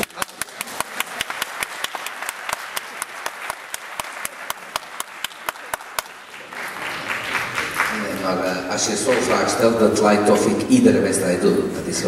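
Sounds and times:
sharp individual claps: 0.0 - 8.0
audience applauding: 0.0 - 9.6.

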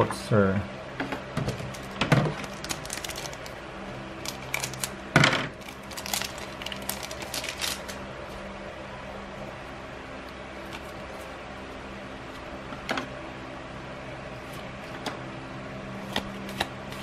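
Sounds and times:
foil wrapper crinkling and tearing: 1.7 - 3.6, 4.2 - 5.0, 5.6 - 8.0.

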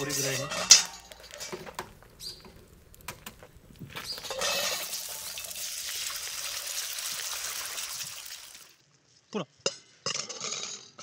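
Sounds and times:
iron ladle clinking: 0.0 - 2.6, 4.2 - 5.6
hot oil crackling and popping: 0.0 - 8.8
steady frying sizzle: 0.0 - 8.8.

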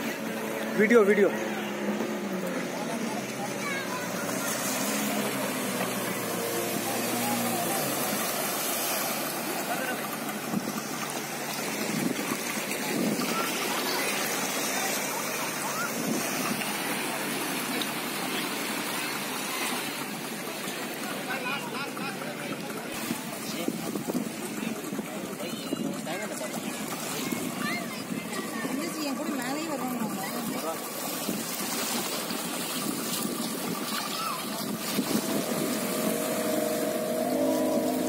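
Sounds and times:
motorboat engine: 0.0 - 38.0
small waves lapping on sand: 0.0 - 38.0
water washing on beach: 0.0 - 38.0.

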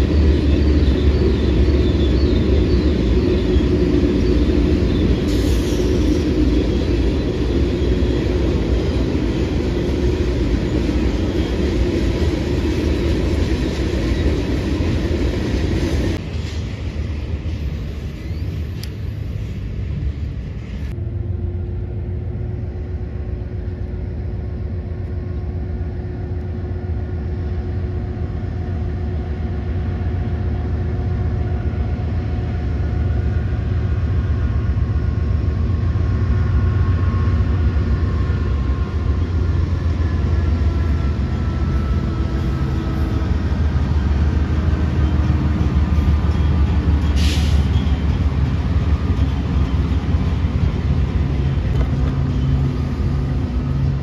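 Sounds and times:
diesel locomotive engine drone: 0.0 - 54.0
faint whines gliding in pitch: 16.9 - 50.8.

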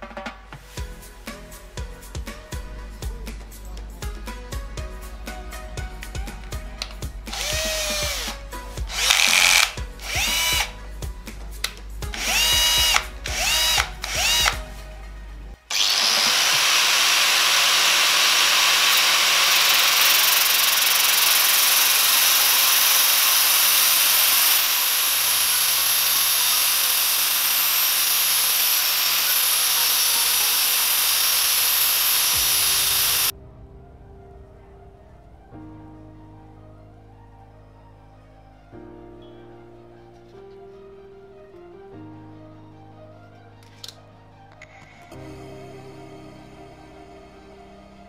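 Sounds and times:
cordless drill motor whine: 7.3 - 10.8, 12.2 - 14.6, 15.7 - 33.3
metal grinding on abrasive disc: 15.7 - 33.3.

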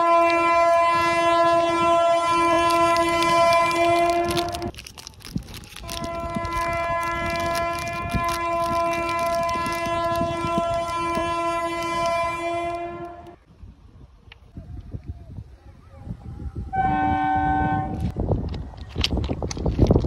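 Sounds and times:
train horn blasts: 0.0 - 4.7, 6.0 - 13.4, 16.7 - 18.1.

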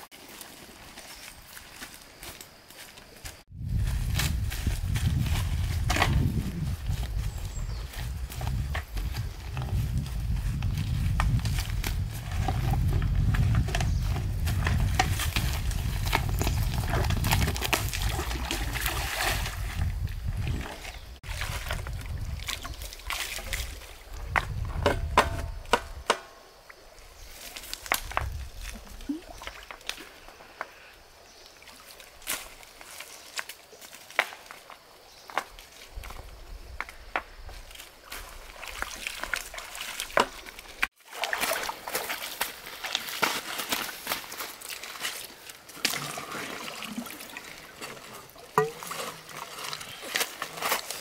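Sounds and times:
water sloshing and splashing: 12.2 - 25.0, 38.0 - 51.0
sharp water splashes and slaps: 16.1 - 23.9, 38.1 - 51.0.

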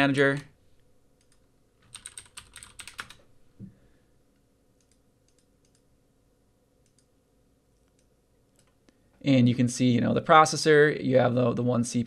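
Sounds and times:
keyboard typing: 1.2 - 3.2.

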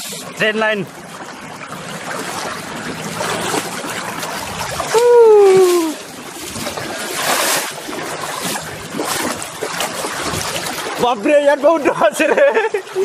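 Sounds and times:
river water splashing: 0.0 - 13.0
person calling out: 4.9 - 6.0.

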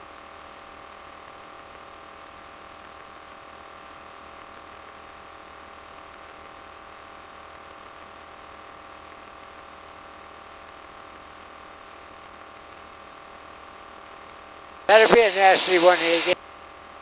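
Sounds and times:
light aircraft engine drone: 14.9 - 16.4.

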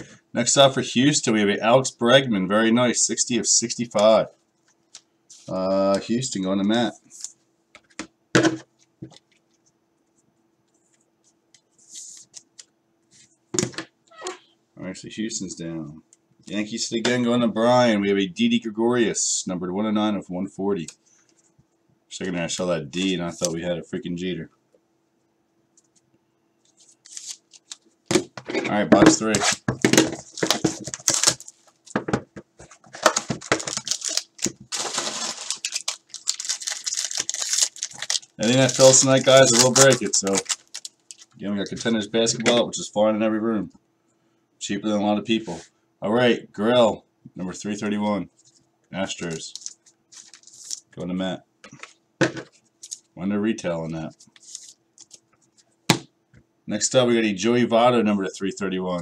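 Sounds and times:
plastic crinkling: 29.5 - 32.0, 32.6 - 42.0, 49.2 - 51.0, 52.8 - 53.1, 54.1 - 55.7
rustling: 32.6 - 41.9.

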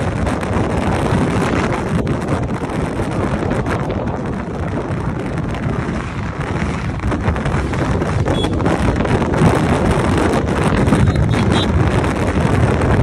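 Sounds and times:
motorcycle engine: 0.0 - 13.0
road noise: 0.0 - 13.0
wind buffeting microphone: 0.0 - 13.0.

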